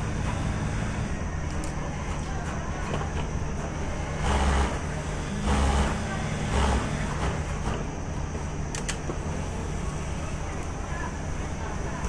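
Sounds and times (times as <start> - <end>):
industrial sewing machine stitching: 4.2 - 7.7.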